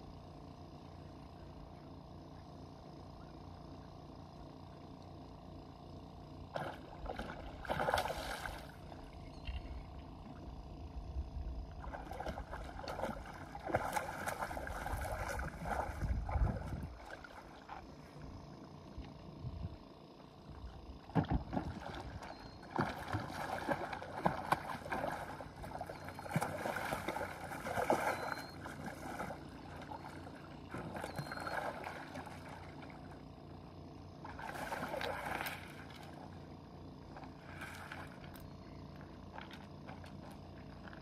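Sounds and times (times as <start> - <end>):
fish splashing in water: 6.4 - 10.0, 11.7 - 18.1, 21.1 - 33.4, 34.2 - 38.4.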